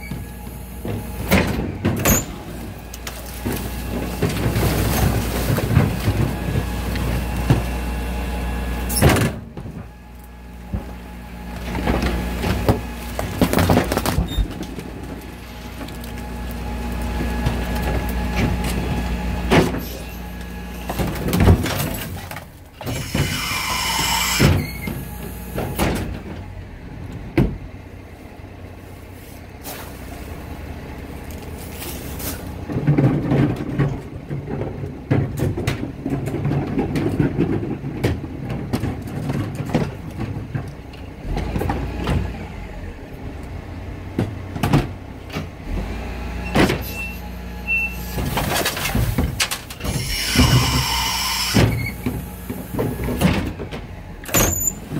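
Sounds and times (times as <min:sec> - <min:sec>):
hydraulic compactor running: 0:00.0 - 0:28.0, 0:44.0 - 0:54.9
truck engine hum: 0:00.0 - 0:54.9
load clattering into hopper: 0:00.1 - 0:08.0, 0:31.4 - 0:42.5
falling squeal: 0:22.9 - 0:24.9, 0:46.8 - 0:48.2, 0:49.9 - 0:52.0.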